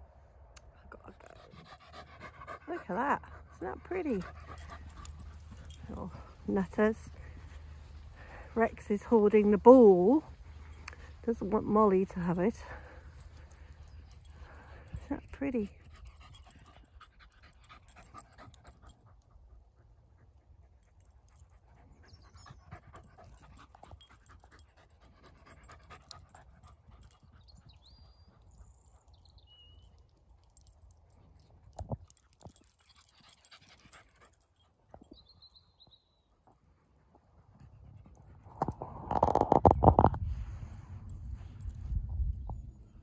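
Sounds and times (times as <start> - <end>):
dog panting: 1.1 - 11.2, 12.5 - 29.1.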